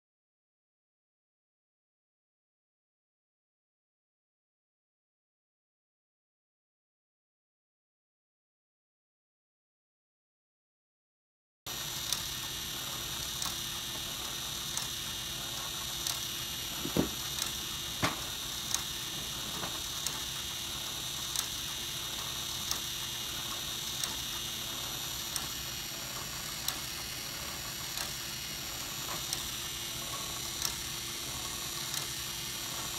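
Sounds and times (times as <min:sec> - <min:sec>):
electric motor whir and whine: 0:11.7 - 0:32.9
loud knocks: 0:16.8 - 0:17.2.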